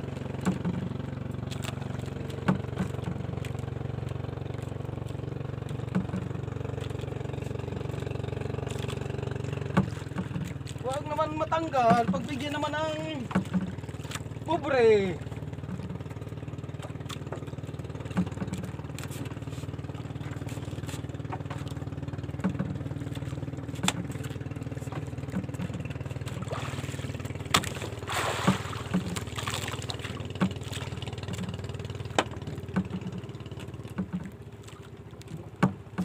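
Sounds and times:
boat engine idling: 0:00.0 - 0:36.0
sharp knocks: 0:00.4 - 0:00.9, 0:13.2 - 0:13.8, 0:30.3 - 0:34.4, 0:35.4 - 0:36.0.

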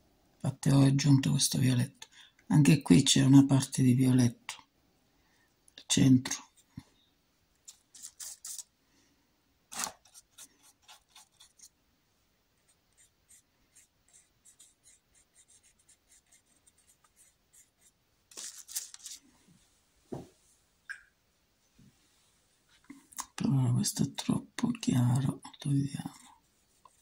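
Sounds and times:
paintbrush dabbing on canvas: 0:12.6 - 0:18.0.

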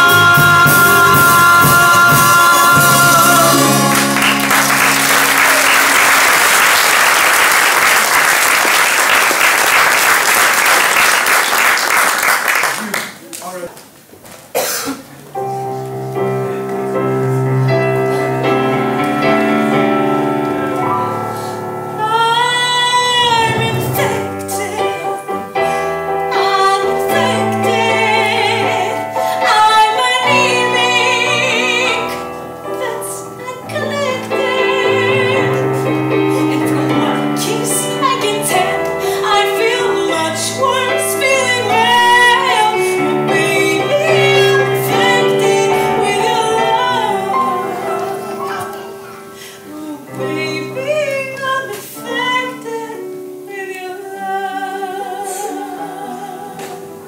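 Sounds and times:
woman singing: 0:00.0 - 0:04.6, 0:21.9 - 0:48.4, 0:49.5 - 0:57.0
instrumental accompaniment: 0:00.0 - 0:07.6, 0:15.3 - 0:57.0.

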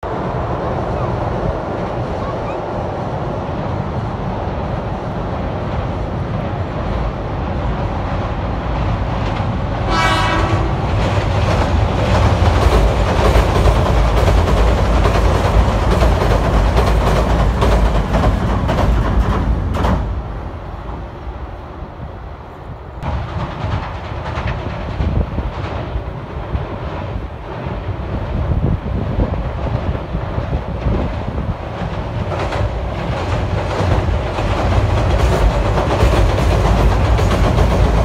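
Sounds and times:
train rumbling on a steel bridge: 0:00.0 - 0:38.0
wheels clacking over rail joints: 0:07.8 - 0:20.4, 0:23.0 - 0:28.8, 0:29.4 - 0:38.0
train horn blast: 0:09.8 - 0:10.9.

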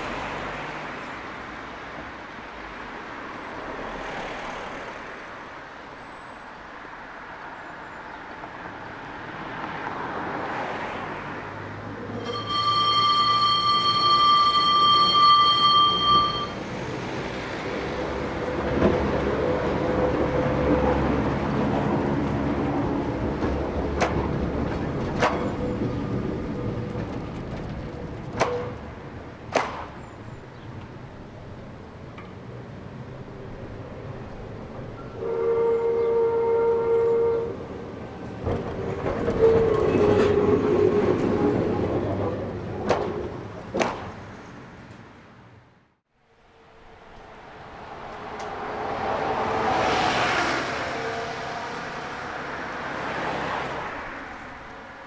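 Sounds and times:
tram rumble: 0:00.0 - 0:55.0
tram wheels clacking over rail joints: 0:11.9 - 0:45.1.

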